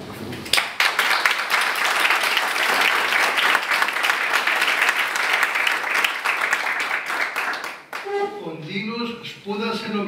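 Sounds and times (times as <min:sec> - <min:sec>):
people applauding: 0:00.5 - 0:08.2.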